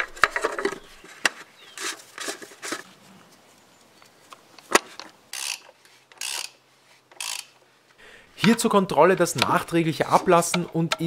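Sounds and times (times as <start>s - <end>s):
plastic scraping on plastic: 0.0s - 3.0s.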